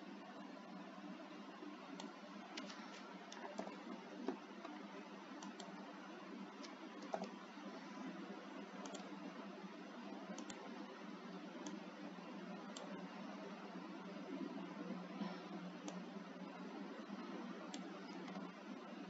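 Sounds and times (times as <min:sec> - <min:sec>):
steady low hiss: 0:00.0 - 0:19.0
computer clicks: 0:01.9 - 0:04.8, 0:05.4 - 0:05.8, 0:06.6 - 0:07.4, 0:08.7 - 0:09.3, 0:10.3 - 0:10.7, 0:11.6 - 0:11.9, 0:12.6 - 0:13.1, 0:15.8 - 0:16.1, 0:17.7 - 0:18.5.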